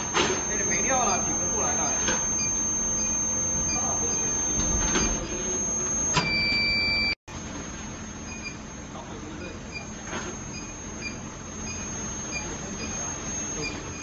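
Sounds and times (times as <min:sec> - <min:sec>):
electronic beep: 0:00.0 - 0:07.2, 0:10.6 - 0:14.0
machine high-pitched whine: 0:00.0 - 0:07.2, 0:08.2 - 0:14.0
low electrical hum: 0:00.0 - 0:14.0.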